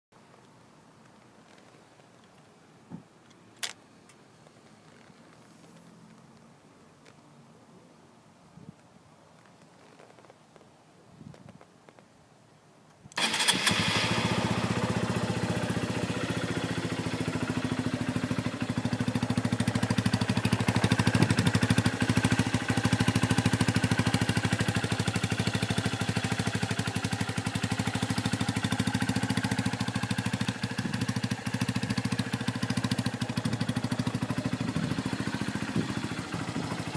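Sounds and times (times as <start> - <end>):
motorcycle engine starting and idling: 13.1 - 36.9.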